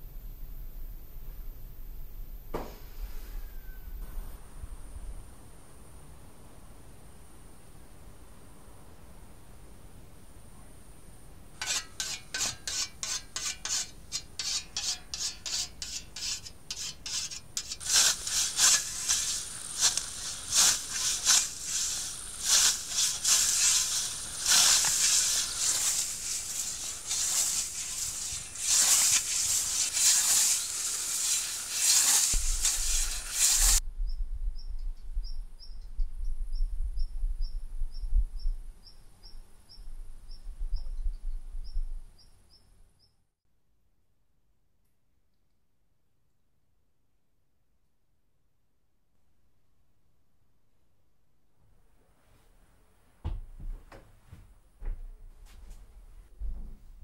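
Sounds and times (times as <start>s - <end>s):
faint high chirp: 3.0s - 4.1s
blade swishing through grass: 17.6s - 33.8s.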